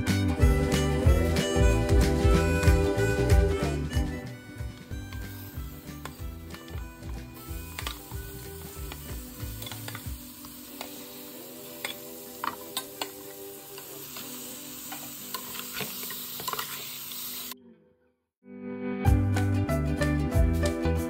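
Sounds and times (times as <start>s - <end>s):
soft background music: 0.0s - 15.2s
meat sizzling in a pot: 5.2s - 6.8s, 7.4s - 17.6s.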